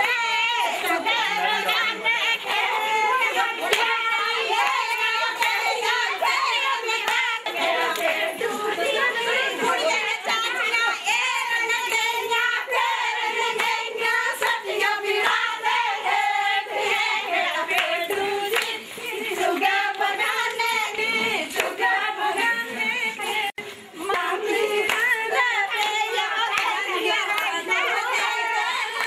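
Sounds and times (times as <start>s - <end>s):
women singing folk song: 0.0s - 29.0s
hand clapping: 3.2s - 8.2s, 17.7s - 21.8s.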